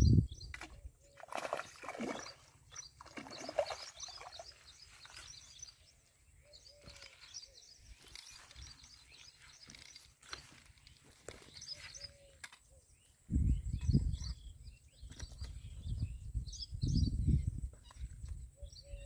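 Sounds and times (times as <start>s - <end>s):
birds chirping: 0.0s - 19.0s
fish splashing at water surface: 1.2s - 4.5s.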